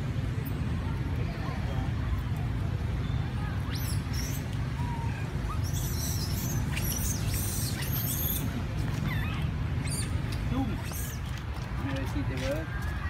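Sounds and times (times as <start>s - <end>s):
macaques squeaking: 3.7s - 11.4s.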